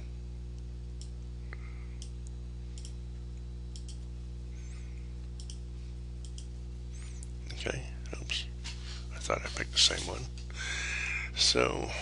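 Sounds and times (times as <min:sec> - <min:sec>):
low steady hum: 0:00.0 - 0:12.0
computer mouse clicking: 0:03.7 - 0:04.0, 0:05.4 - 0:05.6, 0:06.2 - 0:06.5.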